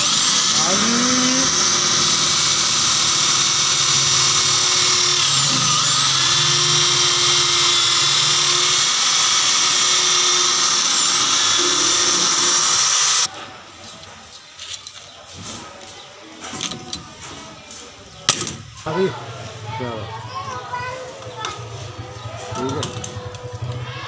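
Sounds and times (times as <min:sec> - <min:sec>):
electric drill boring into metal: 0:00.0 - 0:13.3.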